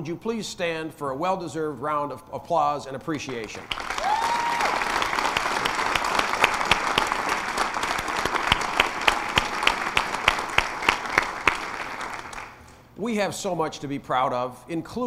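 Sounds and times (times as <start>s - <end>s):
audience applauding: 3.3s - 12.7s
close sharp hand claps: 3.3s - 12.8s.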